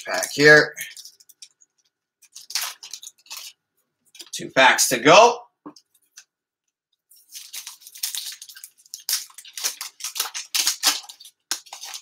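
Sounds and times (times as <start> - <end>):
foil wrapper crinkling: 0.0 - 4.4, 7.2 - 12.0.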